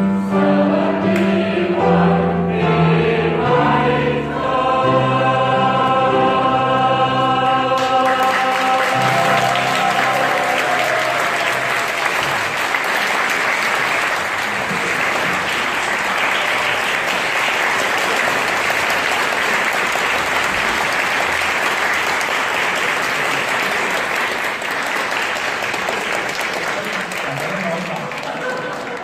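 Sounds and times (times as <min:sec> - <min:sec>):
choir singing: 0:00.0 - 0:14.2
audience applauding: 0:07.8 - 0:29.0.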